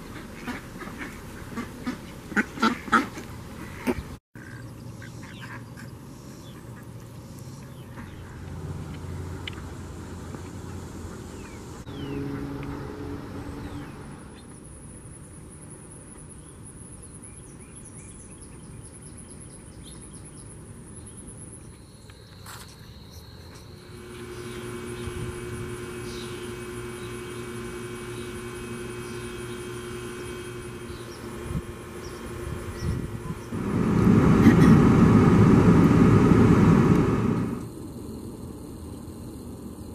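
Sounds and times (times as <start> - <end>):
steady low hum: 23.6 - 39.9
pulsing insect trill: 23.7 - 33.6.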